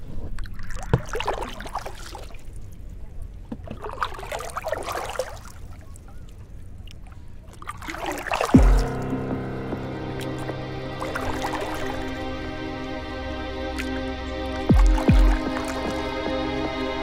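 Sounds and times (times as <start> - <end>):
water swishing against boat hull: 0.0 - 9.0.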